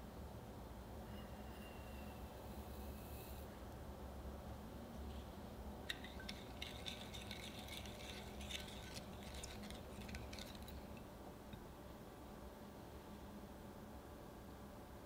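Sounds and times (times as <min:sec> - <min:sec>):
spatula scraping glass bowl: 0:05.9 - 0:11.0.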